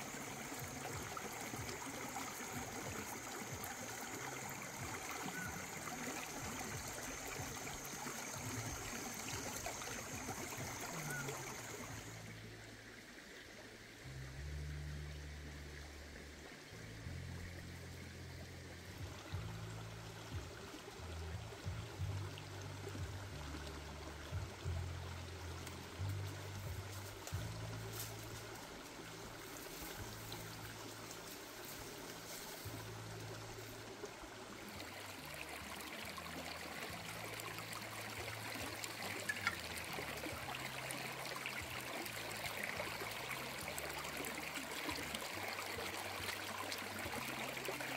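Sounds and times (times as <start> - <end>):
stream trickling over rocks: 0.0 - 47.9
background music: 14.0 - 47.9.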